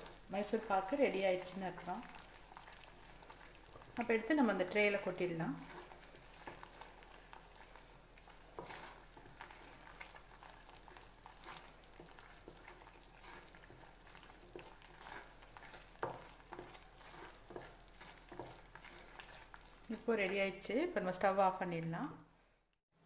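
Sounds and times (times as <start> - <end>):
wooden spatula scraping pan: 0.0 - 20.4
mixture sizzling and bubbling: 0.0 - 23.0.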